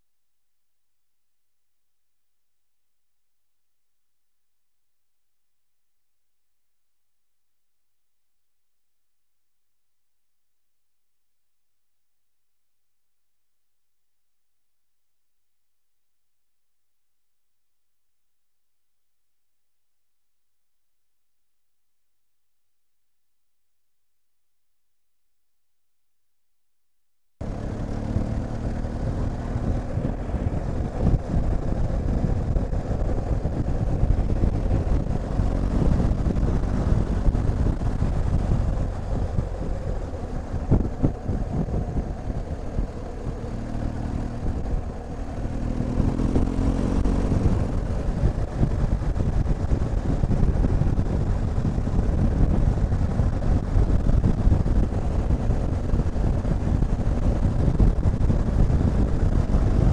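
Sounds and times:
motorcycle engine running: 0:27.4 - 0:59.9
wind and road noise: 0:27.4 - 0:59.9.

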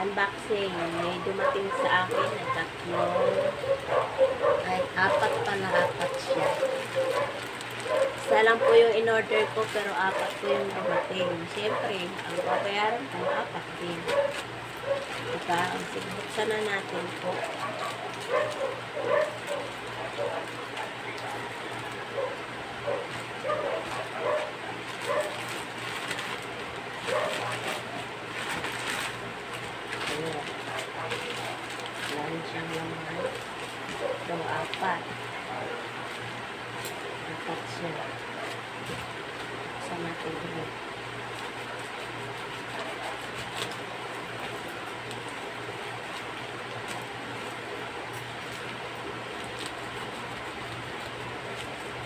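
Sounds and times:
steady low hum: 0:00.0 - 0:52.0
plastic pouch crinkling: 0:00.7 - 0:35.2, 0:41.2 - 0:52.0
scissors cutting plastic: 0:00.8 - 0:34.9, 0:41.2 - 0:45.4
plastic tearing: 0:00.8 - 0:37.1, 0:41.2 - 0:52.0.

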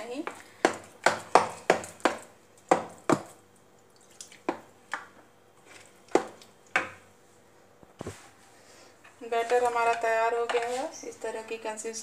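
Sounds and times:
batter slapping in a plastic bowl: 0:00.0 - 0:03.5, 0:04.3 - 0:07.1.

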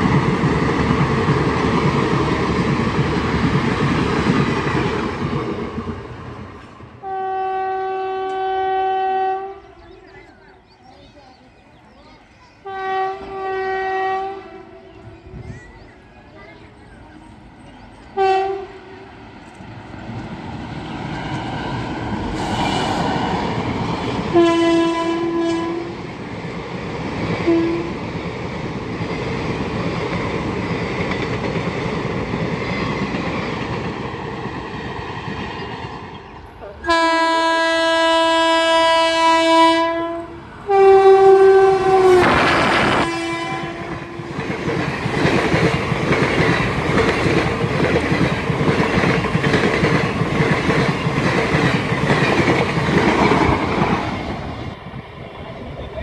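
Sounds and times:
train running noise: 0:00.0 - 0:56.0
locomotive horn blasts: 0:07.0 - 0:09.8, 0:12.6 - 0:14.9, 0:18.2 - 0:19.0, 0:24.3 - 0:25.9, 0:27.4 - 0:28.0, 0:36.8 - 0:44.3.

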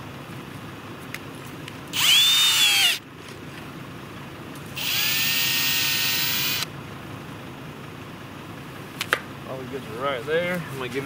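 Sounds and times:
power drill boring into dirt: 0:02.0 - 0:03.0, 0:04.8 - 0:06.7.

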